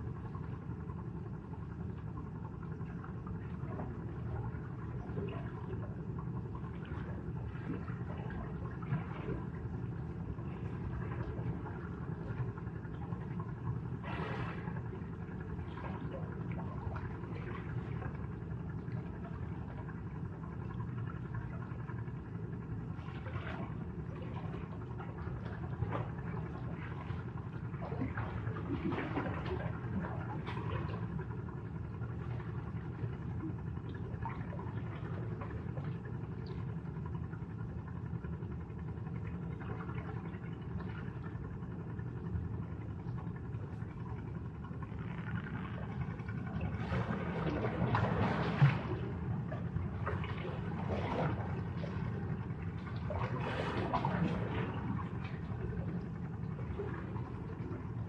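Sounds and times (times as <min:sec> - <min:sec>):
water splashes: 0:01.4 - 0:37.4, 0:38.6 - 0:58.0
sea waves rumbling: 0:06.6 - 0:19.8, 0:39.6 - 0:58.0.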